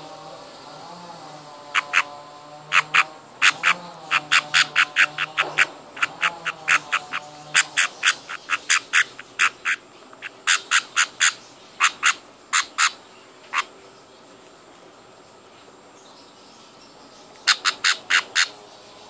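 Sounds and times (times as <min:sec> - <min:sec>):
chick begging chirps: 0:01.7 - 0:13.7, 0:17.3 - 0:18.6.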